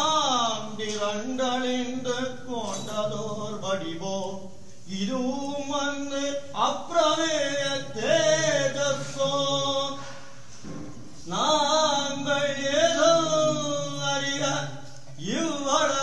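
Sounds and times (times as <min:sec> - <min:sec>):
person singing devotional hymn: 0:00.0 - 0:10.5, 0:11.2 - 0:16.0.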